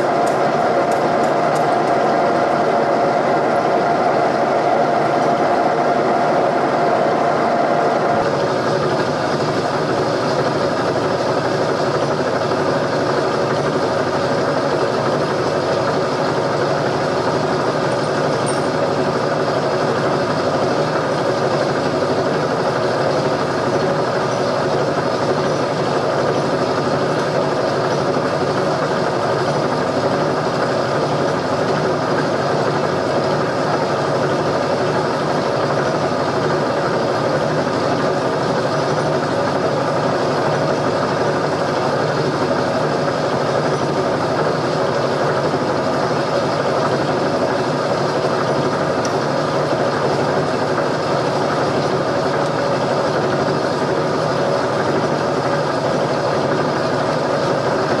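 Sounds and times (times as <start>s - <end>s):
machine motor droning: 0.0s - 31.7s.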